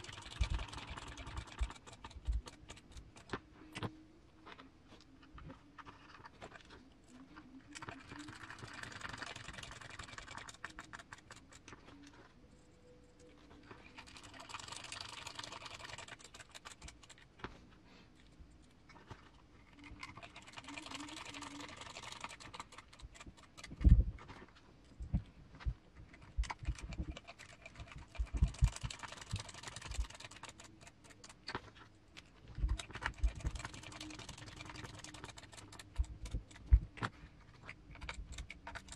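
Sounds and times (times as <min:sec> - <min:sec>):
small parts clicking and rattling: 0:07.6 - 0:12.3, 0:18.6 - 0:24.6, 0:26.0 - 0:38.9.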